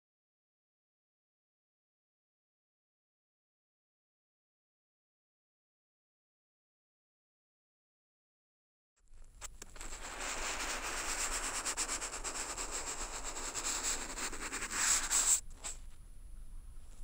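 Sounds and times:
brush scraping across paper: 9.4 - 15.9.

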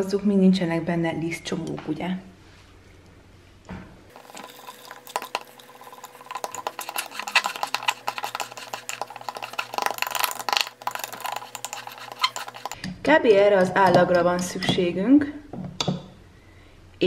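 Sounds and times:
metal spoon scraping glass jar: 4.2 - 12.8.

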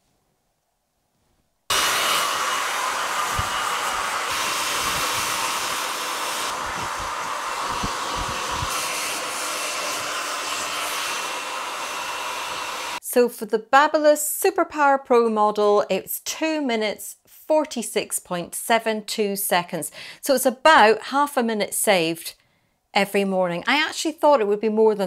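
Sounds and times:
hairdryer blowing: 1.7 - 13.0.

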